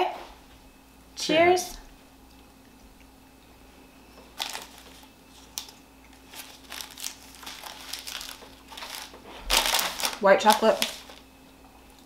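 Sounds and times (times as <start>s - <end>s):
plastic wrapper crinkling: 4.4s - 11.3s
sharp wrapper crackle: 4.4s - 11.3s.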